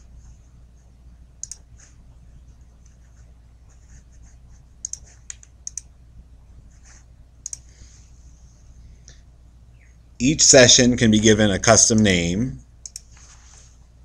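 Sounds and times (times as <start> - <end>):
faint low hum: 0.0 - 14.0
mouse and keyboard clicks: 1.4 - 1.7, 4.8 - 5.9.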